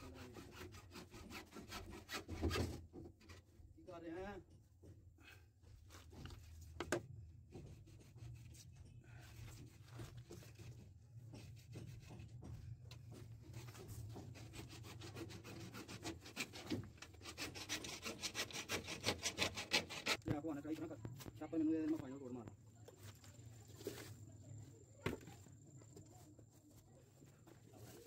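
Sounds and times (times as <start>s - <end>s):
scraping on plastic pipe: 0.0s - 3.5s, 6.0s - 21.2s.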